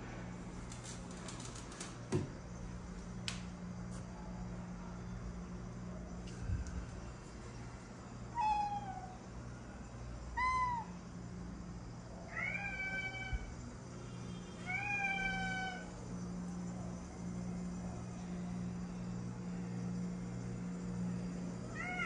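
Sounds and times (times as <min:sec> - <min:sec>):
steady low hum: 0:00.0 - 0:22.0
cat meowing: 0:08.4 - 0:09.1, 0:10.4 - 0:10.9, 0:14.6 - 0:15.9.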